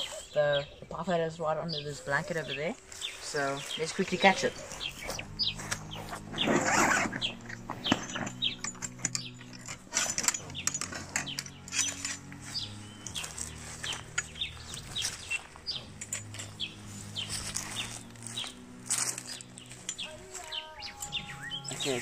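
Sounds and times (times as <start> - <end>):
low steady hum: 0.0 - 22.0
small birds chirping: 0.0 - 22.0.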